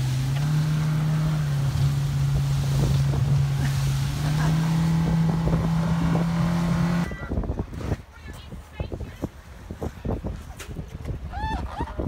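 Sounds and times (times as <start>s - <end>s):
outboard motor running: 0.0s - 7.5s
wind buffeting microphone: 0.0s - 12.0s.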